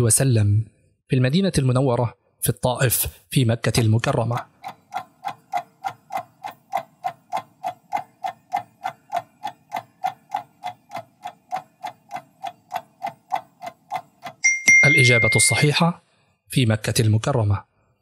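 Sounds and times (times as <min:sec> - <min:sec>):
countdown timer ticking: 0:04.3 - 0:15.8.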